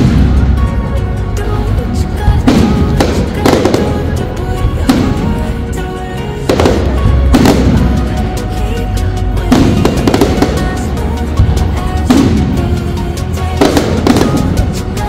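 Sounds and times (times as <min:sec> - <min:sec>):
music playing: 0:00.0 - 0:15.0
firework shells bursting: 0:11.8 - 0:15.0.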